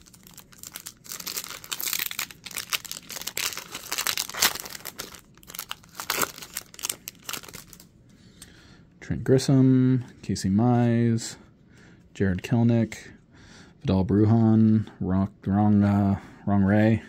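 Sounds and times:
foil wrapper crinkling and ripping: 0.0s - 7.9s.

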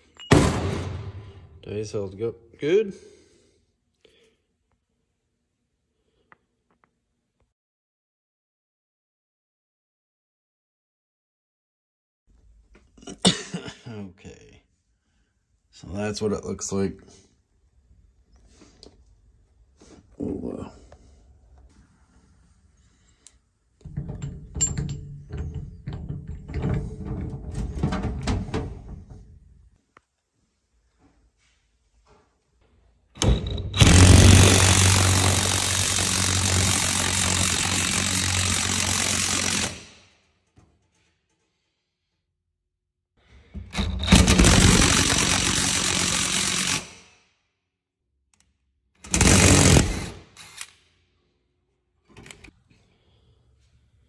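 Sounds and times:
impact wrench hammering: 33.2s - 40.0s.

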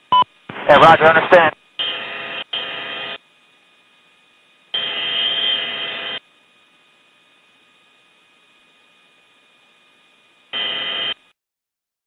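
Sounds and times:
faint hiss with thin whine: 0.3s - 4.8s, 6.1s - 11.4s
buzzy radio static bursts: 0.5s - 3.2s.

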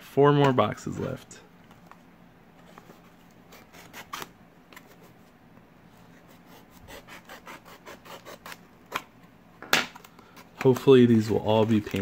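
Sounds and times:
knife blade scraping cardboard: 3.5s - 4.3s, 6.2s - 9.0s.

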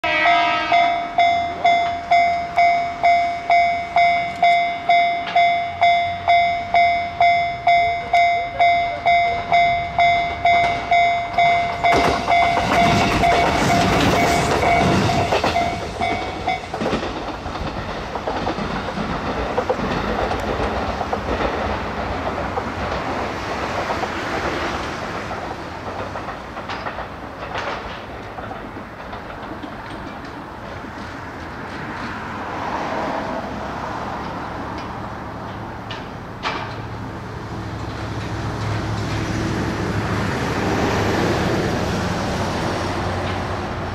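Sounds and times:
diesel railcar passing: 0.0s - 43.9s
level crossing bell ringing: 0.3s - 16.7s.

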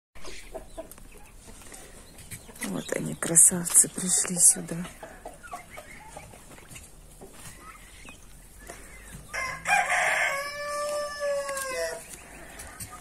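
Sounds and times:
rooster crowing: 9.3s - 12.1s.

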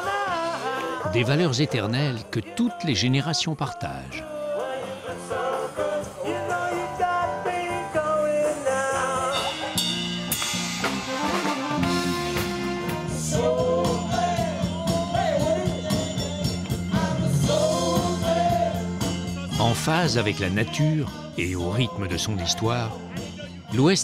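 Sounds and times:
person singing: 0.0s - 10.1s, 12.4s - 24.0s
live band music: 7.0s - 21.3s
drum kit beat: 8.2s - 21.4s.

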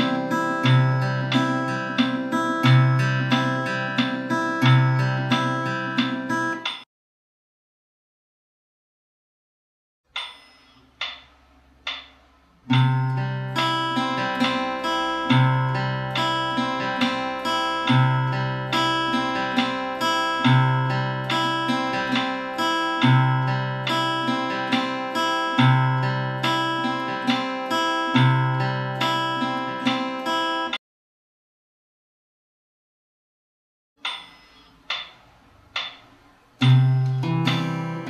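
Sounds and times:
fingerpicked acoustic guitar: 0.0s - 6.6s, 12.7s - 30.8s, 36.6s - 38.0s
sharp count-in clicks: 0.0s - 6.9s, 10.2s - 27.5s, 34.0s - 38.0s.

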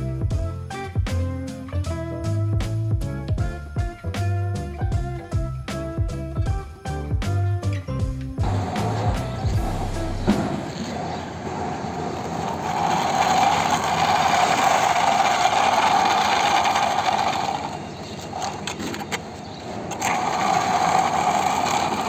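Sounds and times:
toy wheels grinding on concrete: 7.6s - 22.0s.

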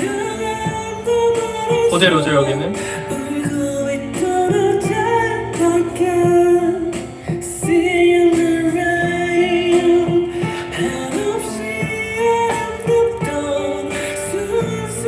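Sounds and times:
instrumental backing: 0.0s - 15.0s
person singing: 0.0s - 15.0s.

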